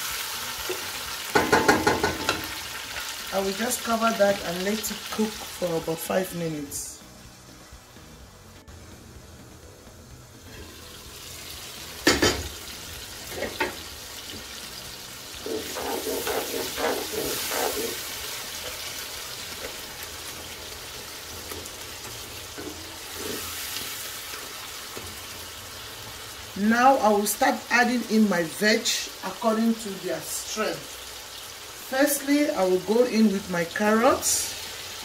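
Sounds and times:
tomatoes sizzling in oil: 0.0s - 35.0s
wooden spoon stirring and scraping: 15.4s - 18.8s.

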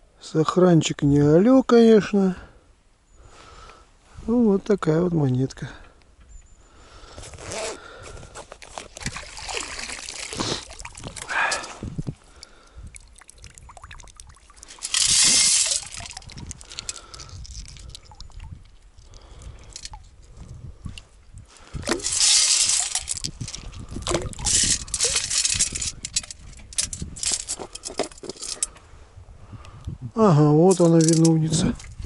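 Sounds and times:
water splashes: 8.6s - 18.8s
water pouring from metal scoop: 8.7s - 11.7s, 12.5s - 18.5s, 21.8s - 28.6s
wet pebbles clicking in scoop: 13.0s - 18.3s, 22.0s - 25.8s.

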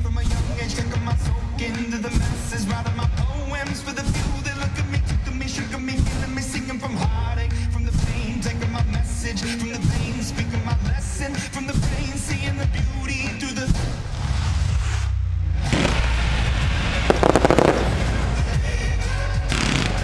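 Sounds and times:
fireworks deep rumble: 15.6s - 18.8s, 19.5s - 20.0s
loud music: 17.1s - 18.8s, 19.5s - 20.0s.

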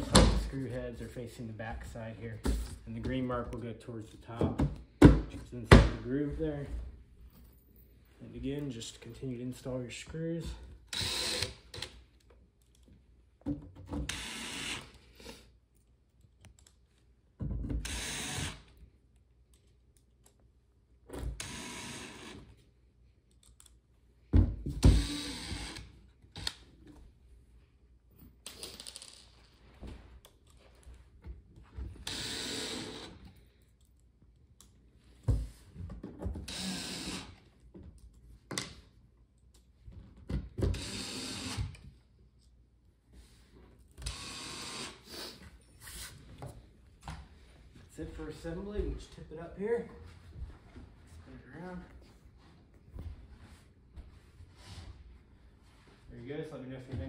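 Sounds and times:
cordless drill driving screws: 10.9s - 11.9s, 14.0s - 15.0s, 17.8s - 18.7s, 21.4s - 22.5s, 24.8s - 26.6s, 32.0s - 33.3s, 36.4s - 37.4s, 40.7s - 41.8s, 44.0s - 45.1s.

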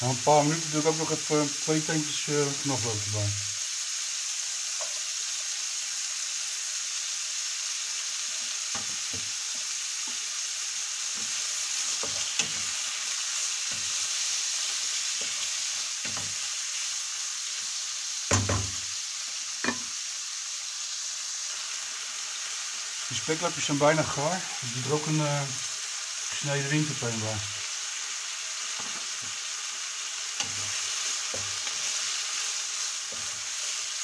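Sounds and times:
meat sizzling in oil: 0.0s - 34.0s
wooden spatula knocking and scraping pan: 11.2s - 12.8s, 15.1s - 16.4s, 18.3s - 18.8s, 30.4s - 32.0s.

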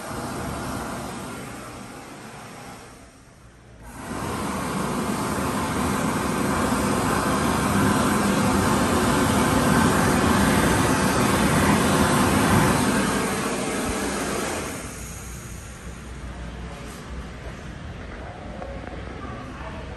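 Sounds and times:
hand dryer blowing air: 0.0s - 3.2s, 3.8s - 16.2s.

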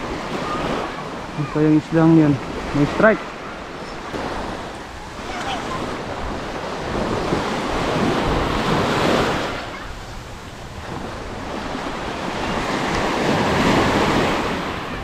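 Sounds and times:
small surf breaking on shore: 0.0s - 15.0s
wind rumbling on microphone: 3.5s - 15.0s.

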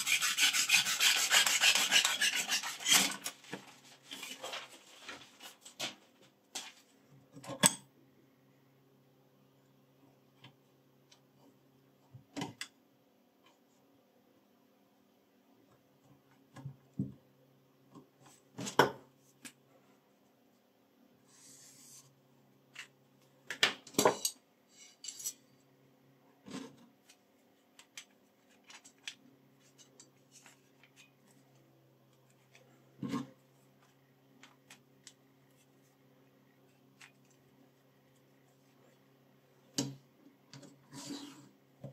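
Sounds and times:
soft rubbing hiss: 21.2s - 22.2s.

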